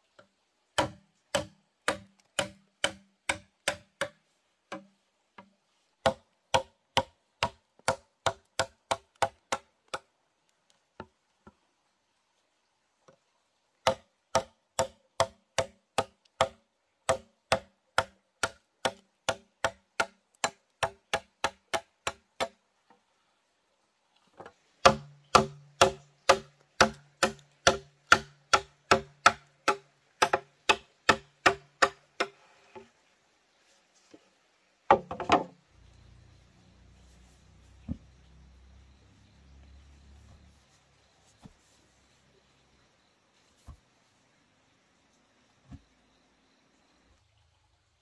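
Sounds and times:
hand tool striking bamboo: 0:00.8 - 0:10.0, 0:13.8 - 0:22.6, 0:24.8 - 0:32.4.

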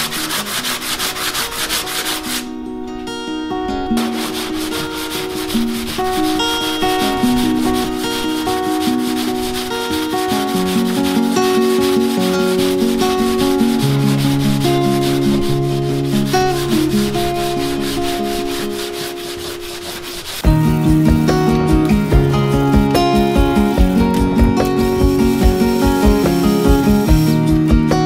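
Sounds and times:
sanding block rubbing: 0:00.0 - 0:02.5, 0:04.0 - 0:20.4, 0:23.2 - 0:27.4
background music: 0:00.0 - 0:28.0.

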